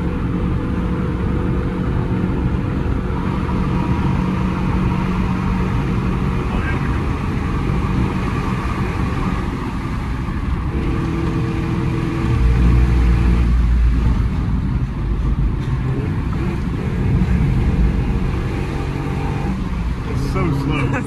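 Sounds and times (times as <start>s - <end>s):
car engine running: 0.0s - 21.0s
road noise: 0.0s - 21.0s.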